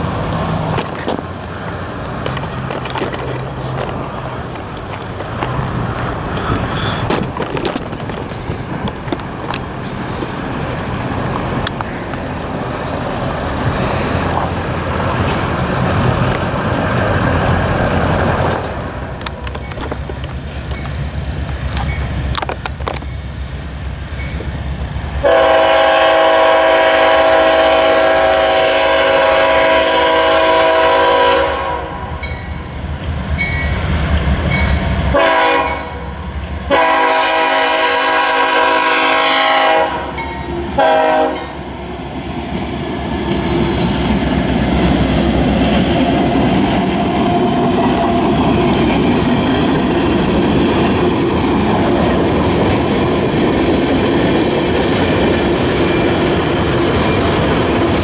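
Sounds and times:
diesel engine rumble: 0.0s - 38.9s, 39.6s - 58.0s
train wheels clacking on rails: 0.0s - 58.0s
locomotive air horn: 25.2s - 32.2s, 35.1s - 36.1s, 36.7s - 40.2s, 40.8s - 41.6s.

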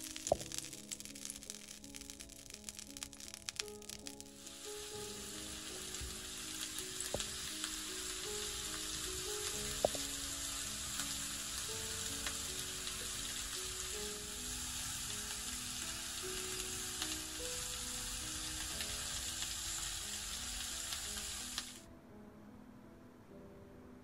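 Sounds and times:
steak sizzling in a pan: 0.0s - 21.9s
soft background music: 0.0s - 24.0s.

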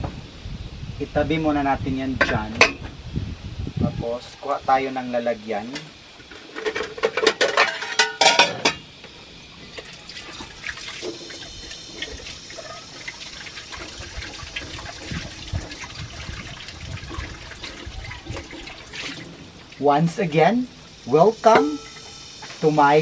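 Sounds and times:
dishes clattering in metal sink: 5.7s - 8.9s, 21.5s - 22.2s
tap water running into sink: 9.7s - 19.8s.

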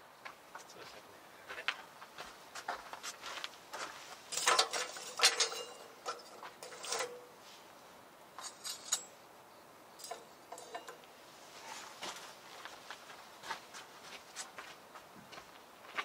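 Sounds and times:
utensils clinking on cookware: 4.3s - 7.3s, 8.4s - 9.1s, 10.0s - 11.0s.

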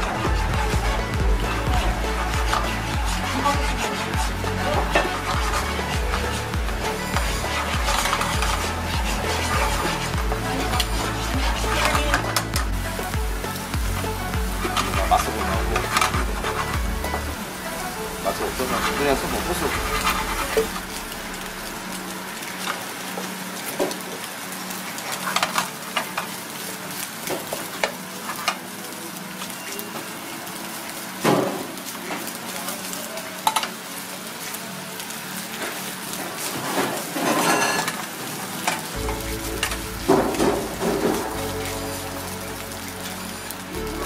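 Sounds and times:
wooden spatula scraping a pan: 0.0s - 21.1s
egg and rice sizzling in a pan: 0.0s - 44.0s.

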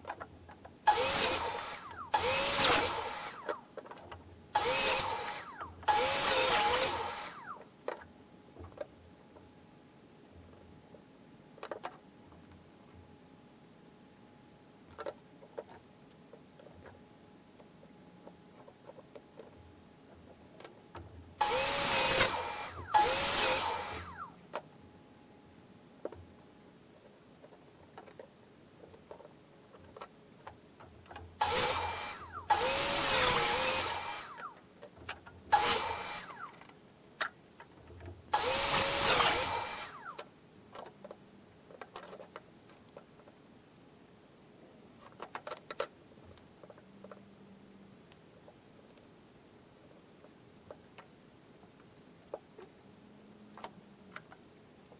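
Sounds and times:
power drill bursts: 0.9s - 3.6s, 4.6s - 7.6s, 21.4s - 24.3s, 31.4s - 34.6s, 35.5s - 36.6s, 38.4s - 40.2s.

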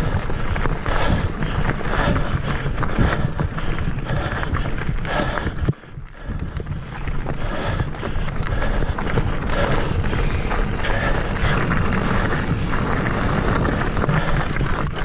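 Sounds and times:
bike tyres rumbling on dirt: 0.0s - 15.0s
bike knocks and rattles: 6.3s - 15.0s.

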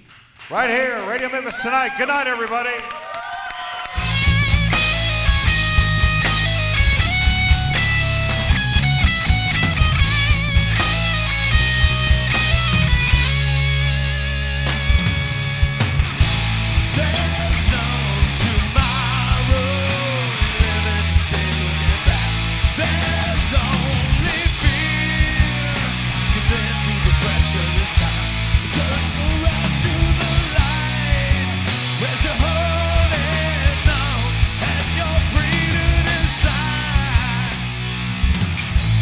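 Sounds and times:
electric guitars: 2.7s - 39.0s
bass guitar: 3.8s - 39.0s
drum kit beat: 3.9s - 39.0s
man singing: 16.8s - 37.8s.

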